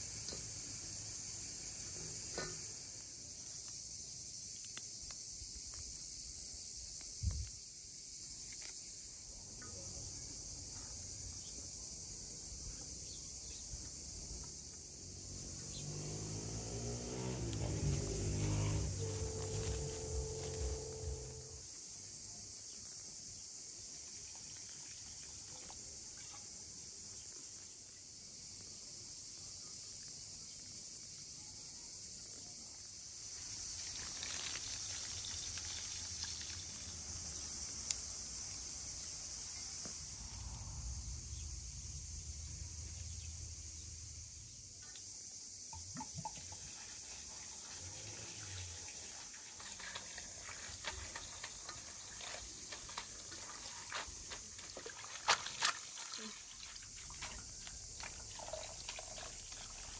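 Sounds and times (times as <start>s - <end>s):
insects droning: 0.0s - 59.9s
water pouring into a metal bowl: 33.8s - 37.5s, 45.7s - 59.9s.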